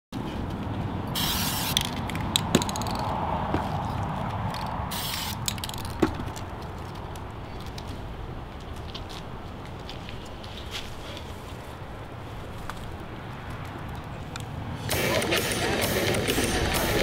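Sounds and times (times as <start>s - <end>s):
spray-paint can hissing: 1.2s - 3.0s, 4.5s - 6.0s.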